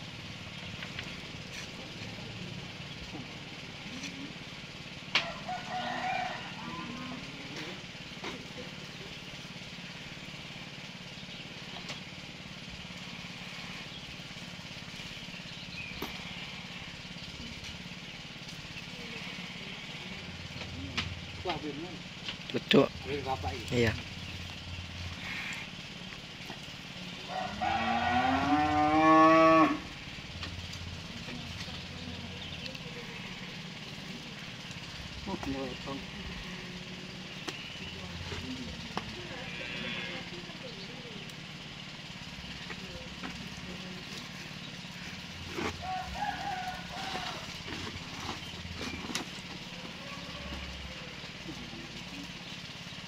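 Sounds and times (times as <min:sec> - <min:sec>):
rooster crowing: 0:05.1 - 0:07.3, 0:27.2 - 0:29.9, 0:45.6 - 0:47.7, 0:49.7 - 0:51.2
cow mooing: 0:06.6 - 0:07.3, 0:27.3 - 0:29.9, 0:39.3 - 0:40.4.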